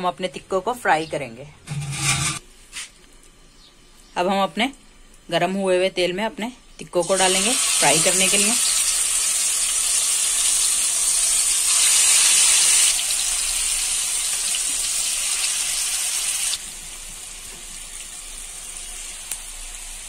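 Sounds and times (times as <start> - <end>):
meat sizzling in hot oil: 7.0 - 20.0.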